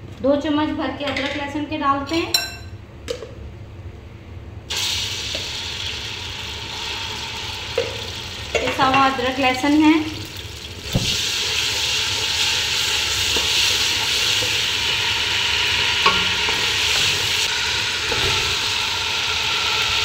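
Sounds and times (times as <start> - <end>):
paste sizzling in hot oil: 10.4 - 20.0.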